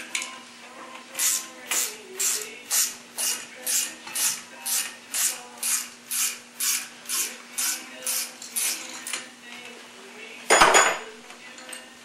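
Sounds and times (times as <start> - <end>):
spring compressor tool rasping: 1.2 - 9.2.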